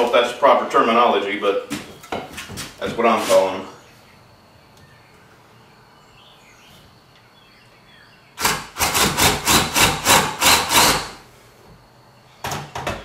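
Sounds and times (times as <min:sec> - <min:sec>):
cordless drill boring into wood: 0:08.4 - 0:11.2.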